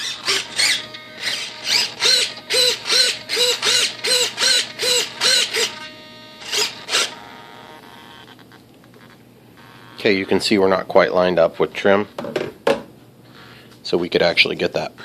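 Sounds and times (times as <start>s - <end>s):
servo whining in short bursts: 0.0s - 10.5s.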